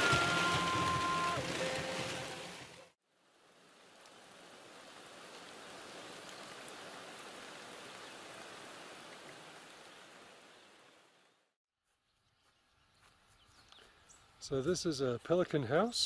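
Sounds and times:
rain hissing: 0.0s - 11.5s.

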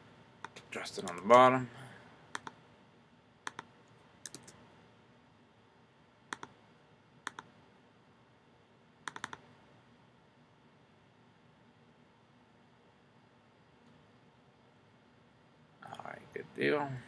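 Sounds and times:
mouse and keyboard clicks: 2.3s - 2.6s, 3.4s - 4.6s, 6.3s - 6.6s, 7.2s - 7.5s, 9.1s - 9.4s.

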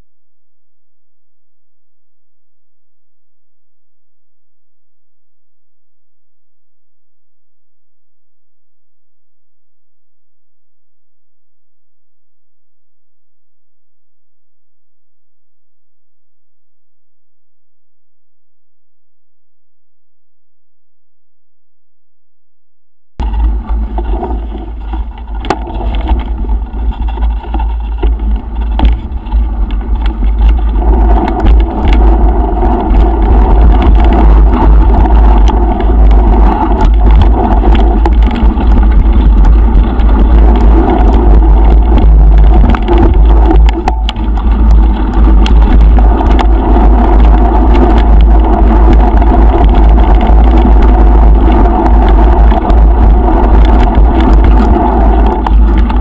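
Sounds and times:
mountain bike rumbling and rattling: 23.2s - 56.0s
wind buffeting microphone: 23.2s - 56.0s.

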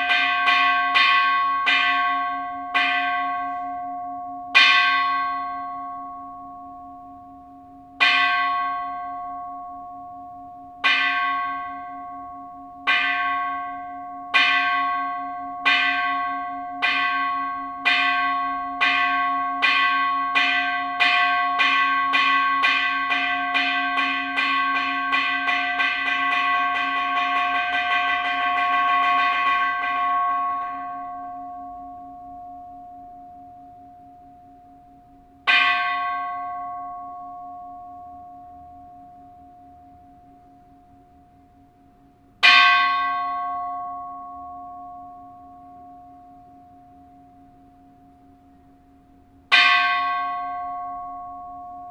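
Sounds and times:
temple bell strikes ringing: 0.0s - 51.9s.

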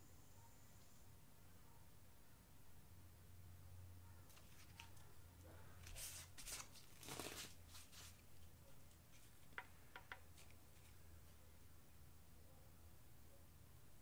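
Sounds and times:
paper towel rustling on metal: 5.8s - 9.4s.

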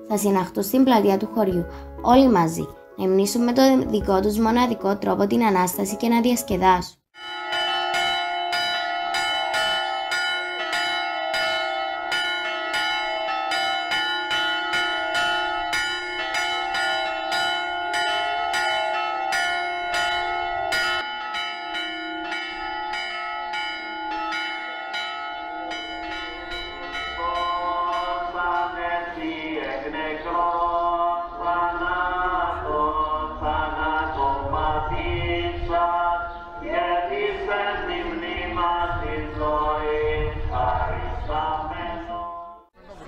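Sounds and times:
church bells ringing: 7.2s - 30.1s
voices singing: 26.5s - 43.0s.

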